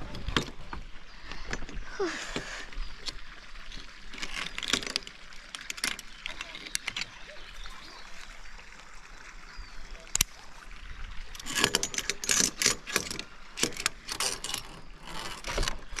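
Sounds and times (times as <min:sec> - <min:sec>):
metal climbing gear clinking: 0:01.2 - 0:01.9, 0:03.0 - 0:07.7, 0:11.4 - 0:16.0.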